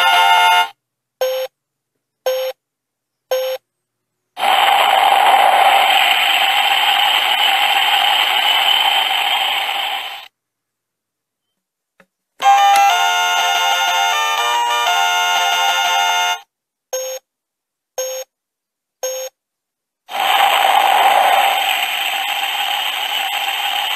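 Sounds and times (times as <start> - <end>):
short electronic beeps: 3.3 - 3.6, 18.0 - 18.3, 19.0 - 19.4
hissing blast-off noise: 4.4 - 10.3, 20.1 - 23.9.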